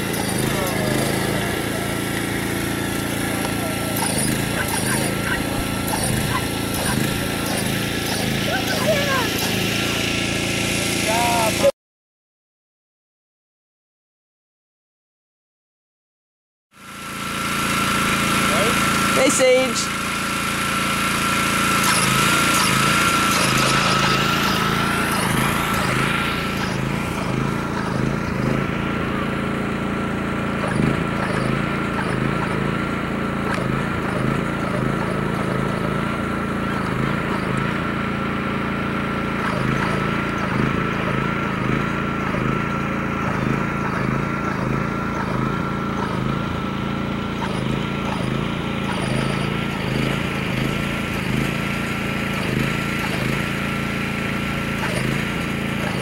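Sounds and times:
small gasoline engine running: 0.0s - 11.7s, 16.7s - 56.0s
high whine: 21.7s - 29.6s.

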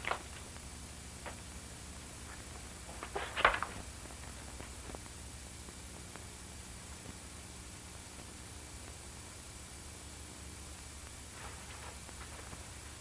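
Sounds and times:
rustling clicks: 0.0s - 0.5s
film soundtrack hiss and hum: 0.0s - 13.0s.

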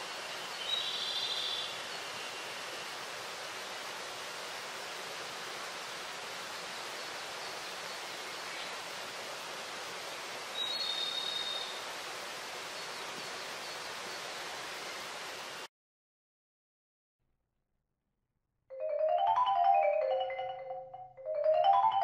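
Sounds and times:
rushing forest ambience: 0.0s - 15.7s, 21.3s - 22.0s.

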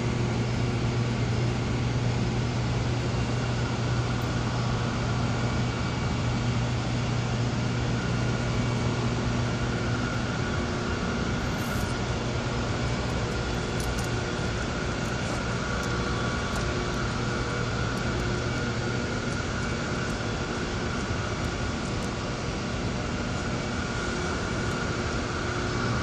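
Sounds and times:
low machine hum: 0.0s - 26.0s.

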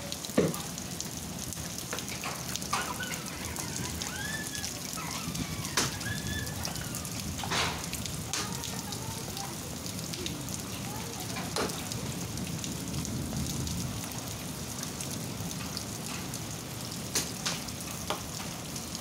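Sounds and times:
heavy rain hissing: 0.0s - 19.0s
hailstones knocking hard surfaces: 1.6s - 9.6s, 10.2s - 12.1s, 15.5s - 18.6s.

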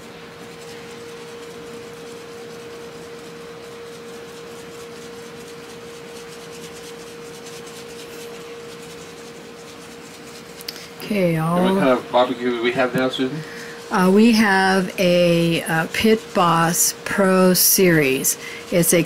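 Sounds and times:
steady hum with hiss: 0.0s - 19.0s
rub rustling onto meat: 0.3s - 19.0s.

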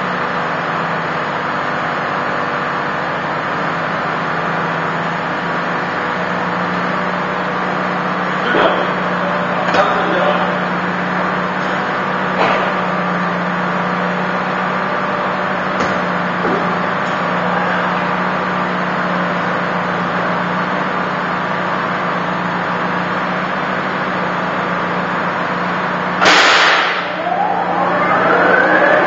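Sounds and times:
cooling fan whooshing: 26.5s - 29.0s.

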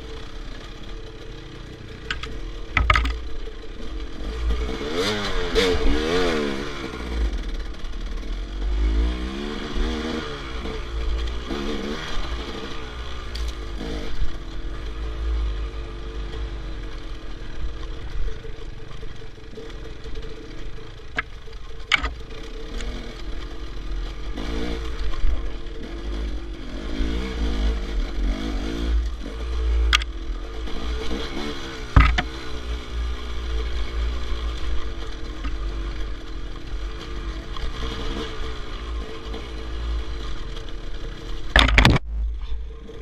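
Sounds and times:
dirt bike engine revving: 0.0s - 43.0s
sharp knocks: 2.1s - 3.2s, 32.0s - 32.4s.

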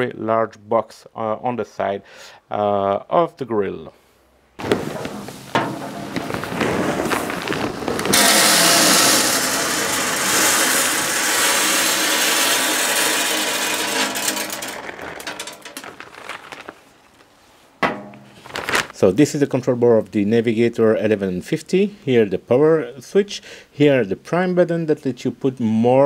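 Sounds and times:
pellets pouring into hopper: 4.6s - 16.8s.

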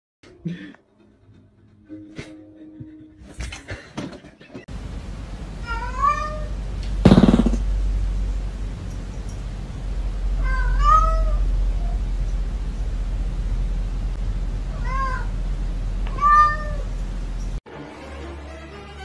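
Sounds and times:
steady low hum: 4.7s - 17.6s
cat meowing: 5.6s - 6.5s, 10.4s - 12.0s, 14.7s - 15.3s, 16.1s - 16.9s.

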